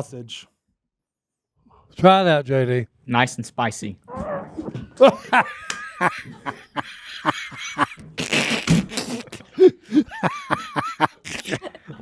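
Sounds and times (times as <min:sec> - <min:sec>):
people laughing: 0:05.0 - 0:12.0
short vocal reactions: 0:08.2 - 0:10.1.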